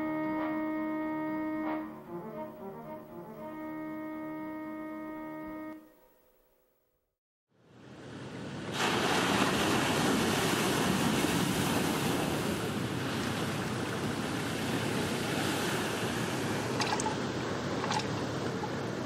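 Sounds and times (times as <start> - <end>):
ocean wave breaking: 8.0 - 19.0
whitewater rushing: 8.7 - 19.0.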